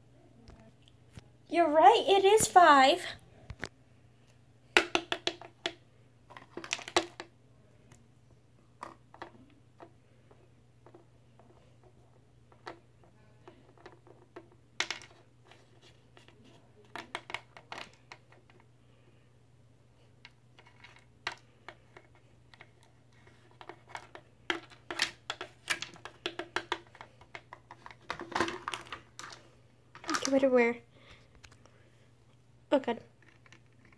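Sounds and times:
faint low hum: 0:00.0 - 0:33.9
plastic toys tapped on wooden table: 0:04.8 - 0:05.8, 0:23.9 - 0:28.7.

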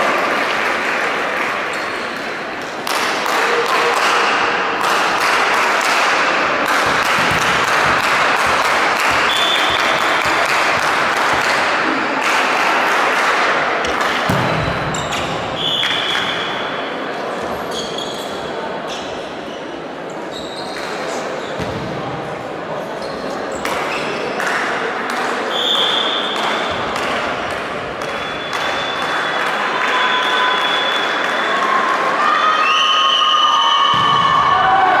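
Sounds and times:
spectators clapping: 0:00.0 - 0:14.3, 0:26.4 - 0:32.2.

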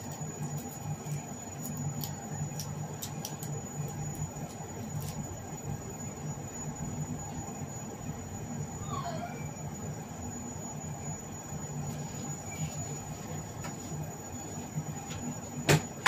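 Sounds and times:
eggshell cracking and peeling: 0:00.0 - 0:05.2
gas burner rumbling: 0:00.0 - 0:16.0.

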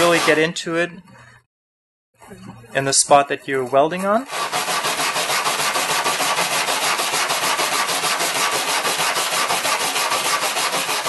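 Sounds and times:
wire brush scrubbing metal: 0:00.0 - 0:00.5, 0:03.8 - 0:11.0.

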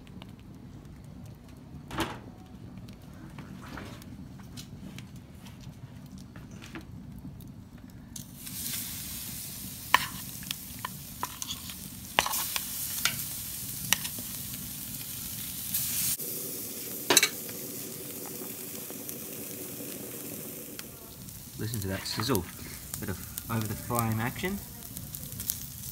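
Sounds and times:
steaks sizzling on a grill: 0:08.1 - 0:25.9.

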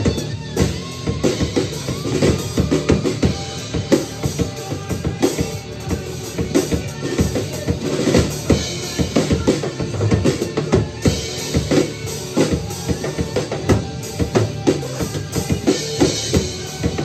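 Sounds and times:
drum kit rock groove: 0:00.0 - 0:17.0
rock band recording: 0:00.0 - 0:17.0.

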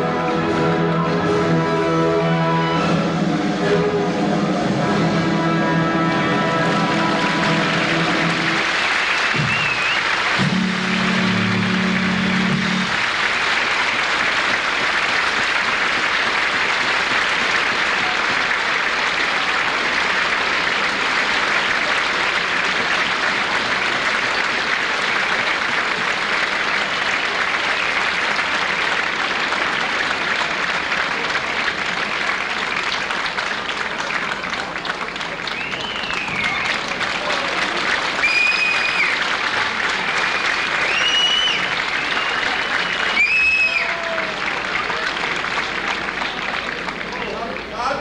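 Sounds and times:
large audience applauding: 0:05.4 - 0:48.0
band holding final note: 0:10.4 - 0:13.0.

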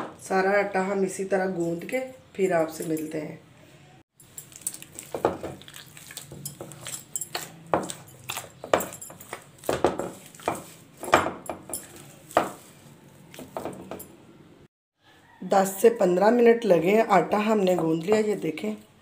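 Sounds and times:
hands kneading dough: 0:04.4 - 0:13.7.

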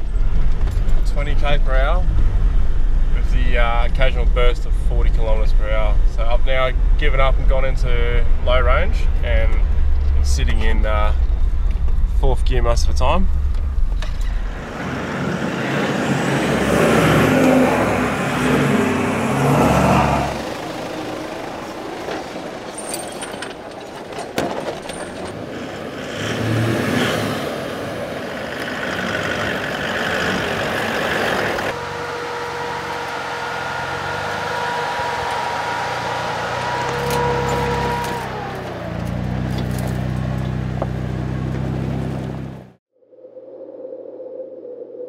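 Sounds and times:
steady whine: 0:00.0 - 0:16.8, 0:30.6 - 0:38.8
vehicle engine running: 0:00.0 - 0:24.2, 0:28.1 - 0:42.8
knocks and rattles: 0:21.4 - 0:25.5.

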